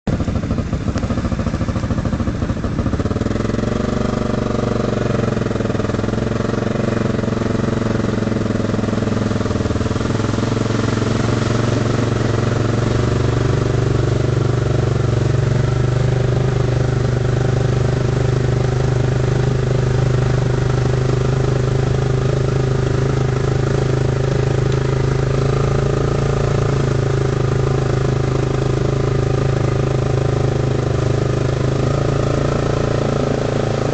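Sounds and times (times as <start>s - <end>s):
quad bike engine running: 0.0s - 33.9s.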